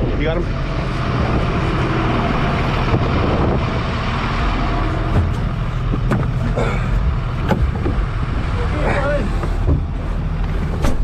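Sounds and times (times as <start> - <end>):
vehicle engine running: 0.0 - 11.0
knocks and rattles: 5.0 - 8.6, 9.3 - 11.0.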